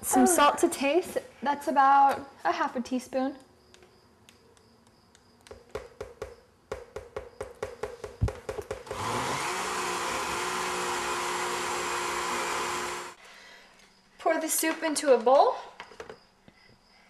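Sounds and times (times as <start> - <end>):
countertop blender running: 8.9 - 13.2.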